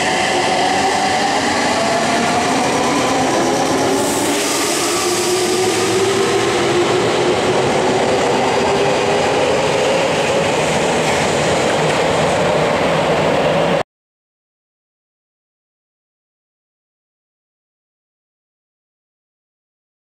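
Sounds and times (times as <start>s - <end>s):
train wheels rumbling on rail: 0.0s - 13.8s.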